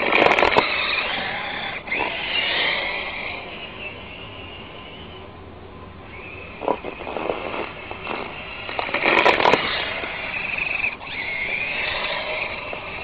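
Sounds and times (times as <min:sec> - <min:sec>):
toy car motor whining: 0:00.0 - 0:05.4, 0:06.0 - 0:13.0
scraping and crunching snow: 0:06.7 - 0:09.9.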